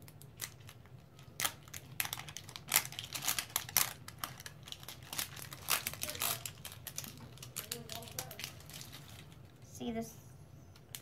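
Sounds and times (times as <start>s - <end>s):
plastic wrapping crackling and tearing: 0.0s - 9.6s.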